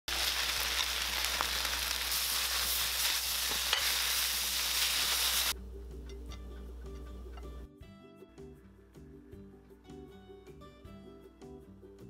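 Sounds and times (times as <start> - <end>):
food sizzling in a wok: 0.1 - 5.6.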